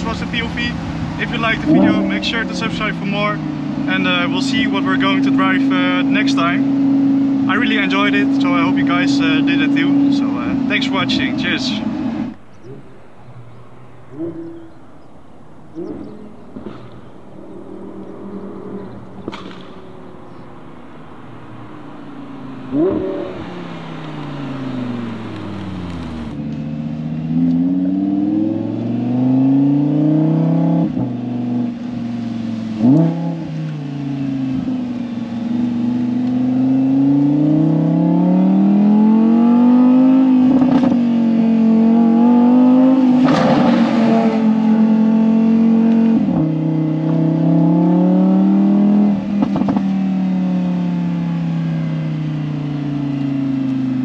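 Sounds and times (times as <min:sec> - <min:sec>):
sports car engine revving: 0:00.0 - 0:54.0
sharp engine rev blips: 0:01.2 - 0:03.8, 0:15.7 - 0:26.4.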